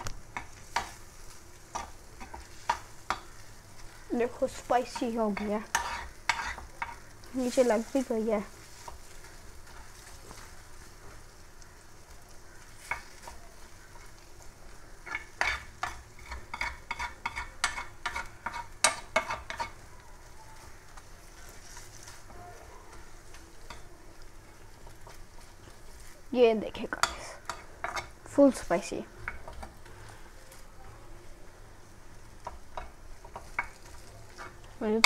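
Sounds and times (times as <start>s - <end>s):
noodles sizzling in oil: 0.0s - 35.0s
spoon scraping pan: 0.4s - 10.6s, 15.0s - 19.9s, 26.9s - 28.3s.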